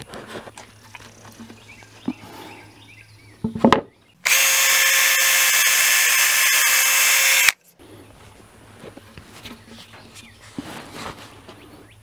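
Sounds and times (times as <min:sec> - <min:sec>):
cordless drill boring into wood: 0:04.2 - 0:07.6.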